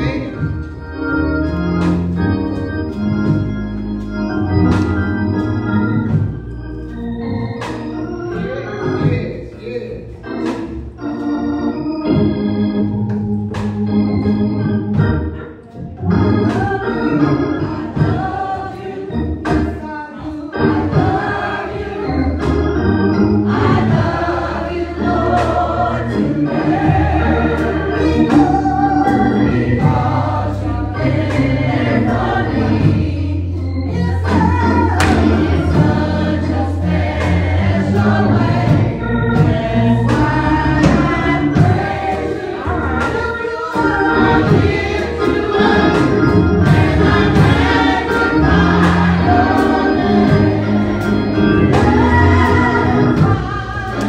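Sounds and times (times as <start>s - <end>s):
voices singing: 0.0s - 6.0s, 14.7s - 54.0s
organ playing gospel chords: 0.0s - 54.0s.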